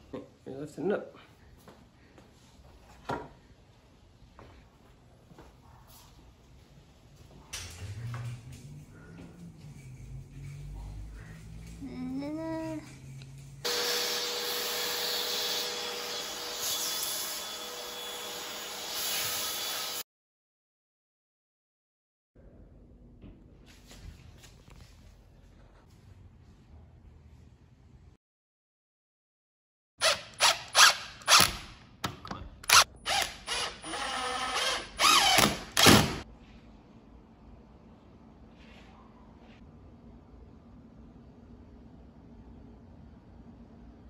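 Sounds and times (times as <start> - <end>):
vacuum cleaner running: 13.6 - 16.6
cordless drill driving screws: 32.7 - 36.2.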